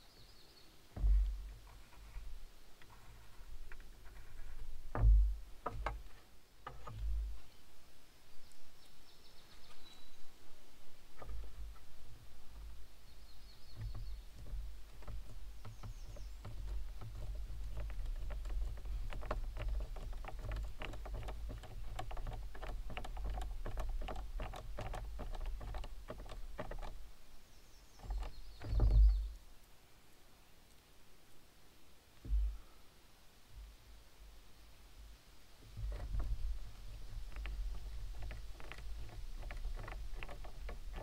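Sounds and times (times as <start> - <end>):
bird chirping: 0.0 - 1.5, 8.3 - 10.4, 12.6 - 19.0, 26.4 - 29.4
thump: 1.0 - 1.7, 4.9 - 6.0, 32.2 - 32.6.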